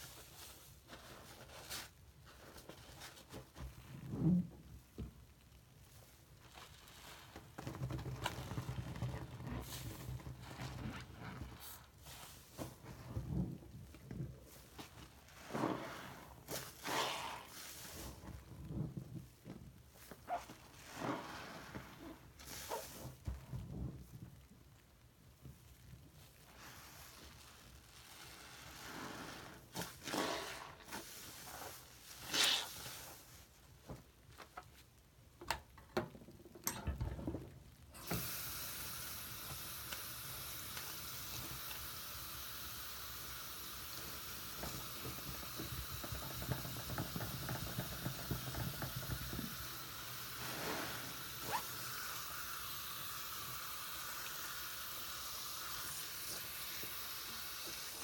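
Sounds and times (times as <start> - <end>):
sponge squelching in water: 14.4 - 19.2, 20.1 - 23.2, 26.3 - 33.5
faucet running into sink: 38.0 - 58.0.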